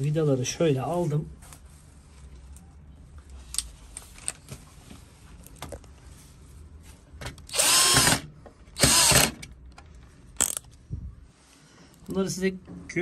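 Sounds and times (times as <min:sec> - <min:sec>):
power screwdriver whirring: 0:07.5 - 0:09.5.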